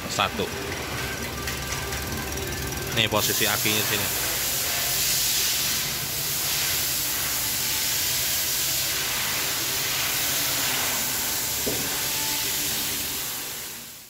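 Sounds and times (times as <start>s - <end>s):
steady hiss: 3.2s - 14.0s.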